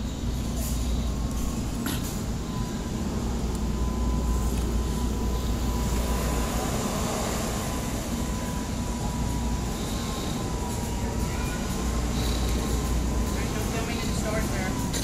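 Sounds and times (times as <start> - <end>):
faint steady whine: 0.0 - 15.0
shopping cart wheels rattling: 8.2 - 15.0.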